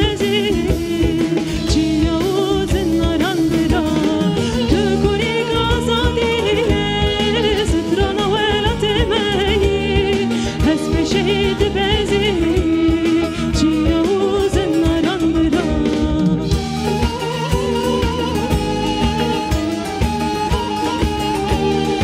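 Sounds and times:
woman singing folk song: 0.0 - 16.7
bass guitar: 0.0 - 22.0
plucked lutes: 0.0 - 22.0.

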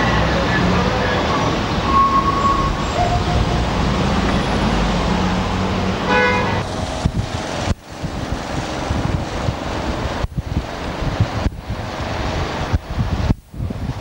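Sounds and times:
city street traffic: 0.0 - 14.0
car horn: 6.0 - 6.7.

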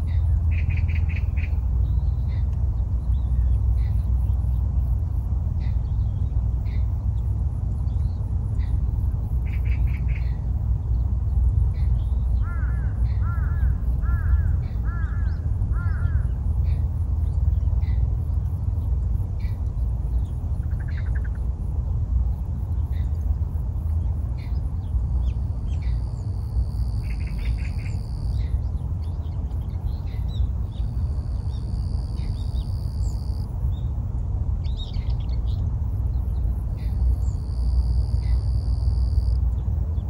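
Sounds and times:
steady low rumble: 0.0 - 40.0
birds chirping: 22.3 - 40.0.

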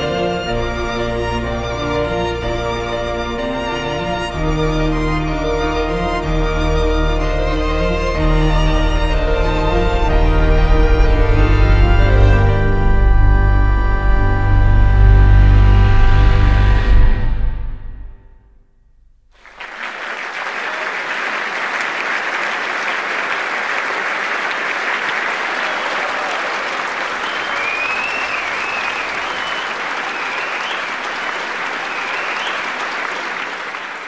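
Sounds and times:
music chord: 0.0 - 18.4
audience applause: 7.3 - 12.5, 19.4 - 34.0.

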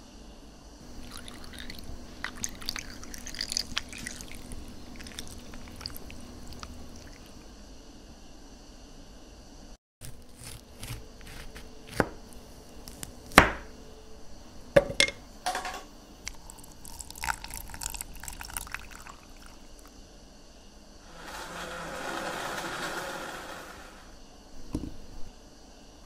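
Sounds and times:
liquid poured over ice: 0.8 - 7.4, 16.3 - 19.9.

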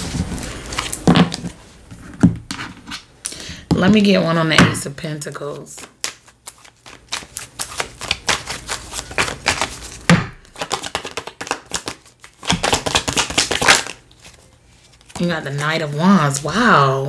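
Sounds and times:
cards being shuffled: 5.5 - 16.7.

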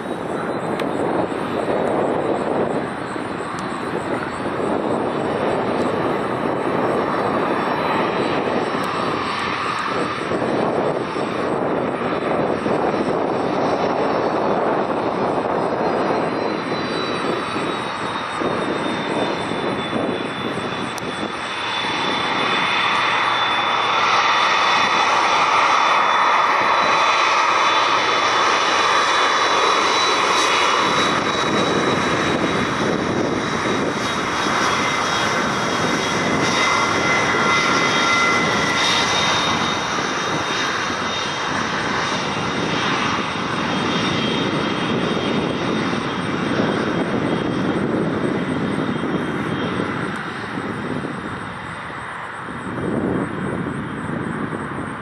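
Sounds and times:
jet engines whining: 0.0 - 55.0.

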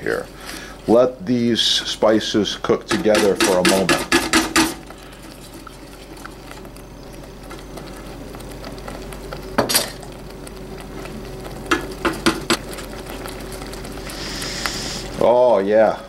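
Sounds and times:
spatula stirring in a pot: 2.9 - 15.3
sauce simmering and bubbling: 3.0 - 15.8.

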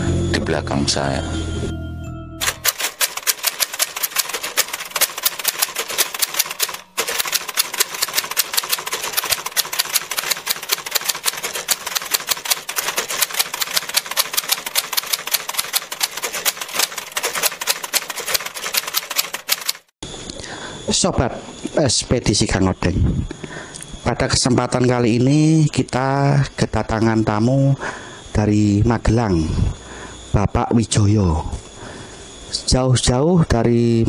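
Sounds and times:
typewriter key clicks: 2.4 - 19.9.

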